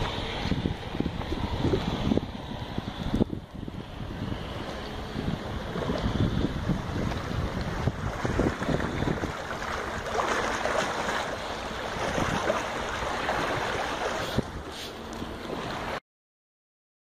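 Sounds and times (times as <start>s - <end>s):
wind buffeting microphone: 0.0s - 16.0s
hiss of water: 13.9s - 15.1s.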